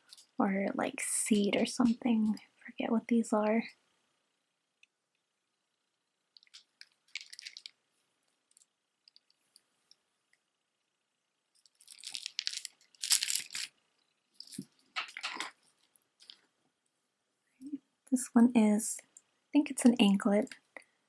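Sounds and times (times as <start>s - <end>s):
beaded necklace clacking: 6.3s - 7.8s, 11.5s - 16.4s.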